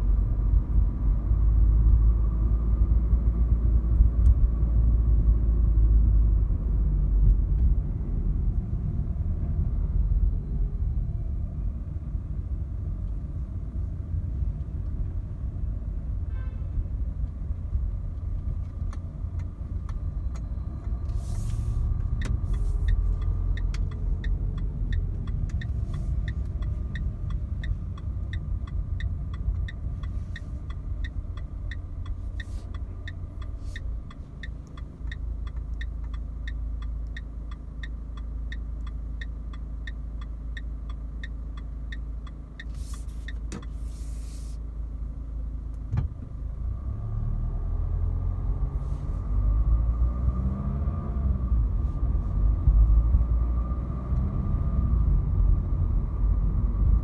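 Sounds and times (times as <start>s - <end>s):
diesel car engine: 0.0s - 57.0s
turn indicator ticking: 17.1s - 21.2s, 21.8s - 43.9s.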